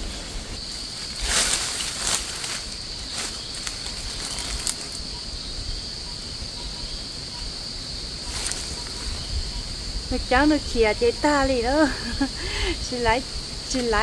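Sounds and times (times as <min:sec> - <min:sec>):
dry leaves rustling: 0:00.0 - 0:05.2, 0:08.1 - 0:10.0
high-pitched insect drone: 0:00.0 - 0:14.0.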